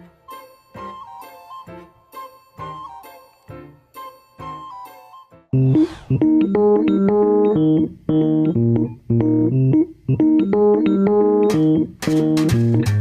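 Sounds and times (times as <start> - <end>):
keyboard chords: 0.0 - 13.0.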